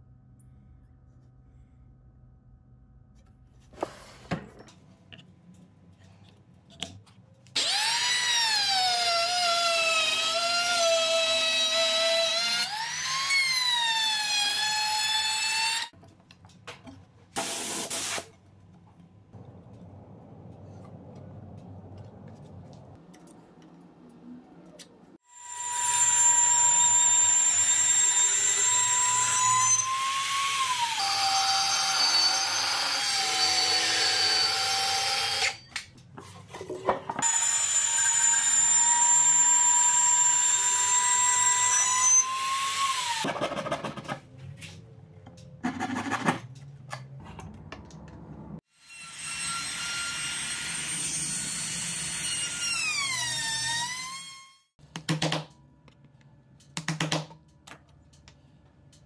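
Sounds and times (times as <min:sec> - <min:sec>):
router cutting wood: 0:07.6 - 0:15.9.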